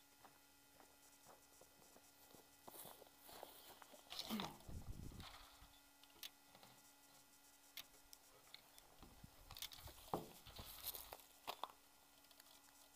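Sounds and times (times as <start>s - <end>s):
faint steady hum: 0.0s - 12.9s.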